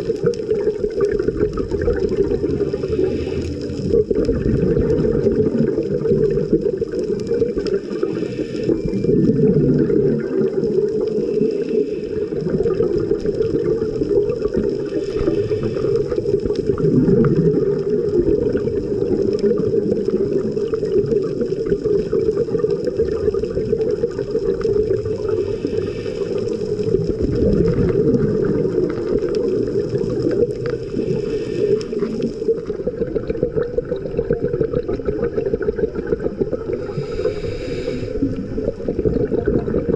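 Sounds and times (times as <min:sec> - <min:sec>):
underwater regulator bubbles: 0:00.0 - 0:39.9
underwater water wash: 0:00.0 - 0:39.9.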